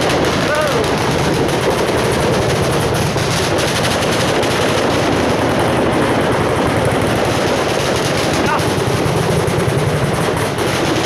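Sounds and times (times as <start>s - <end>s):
firecrackers crackling: 0.0s - 11.0s.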